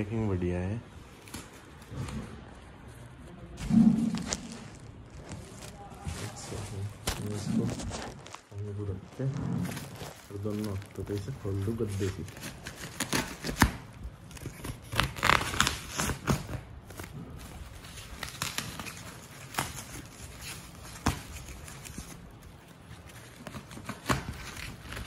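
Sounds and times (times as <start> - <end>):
wrapping tearing and crinkling: 3.6 - 25.0
knife slitting plastic wrapping: 9.8 - 25.0.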